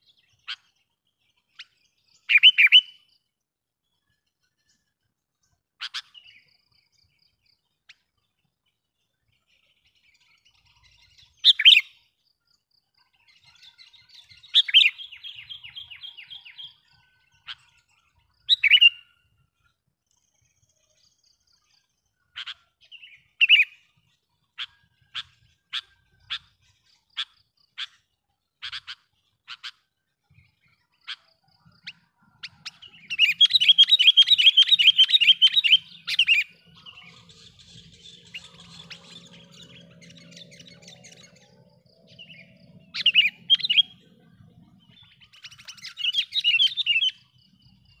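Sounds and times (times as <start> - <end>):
bird calling with sharp notes: 1.5 - 3.2, 5.8 - 6.5, 10.6 - 12.1, 13.4 - 17.8, 18.4 - 19.2, 22.2 - 23.9, 24.5 - 29.9, 30.5 - 48.0.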